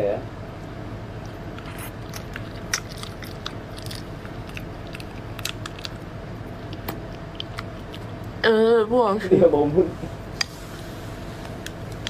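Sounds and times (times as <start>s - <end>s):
faint steady hum: 0.0s - 12.0s
mouth clicks and smacks: 1.2s - 6.0s, 6.7s - 8.1s
wet chewing: 1.2s - 8.4s.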